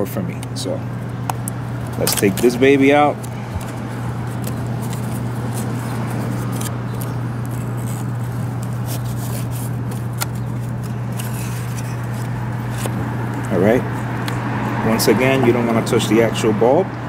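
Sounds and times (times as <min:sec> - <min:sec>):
steady low hum: 0:00.0 - 0:17.0
cardboard rustling: 0:01.1 - 0:14.3.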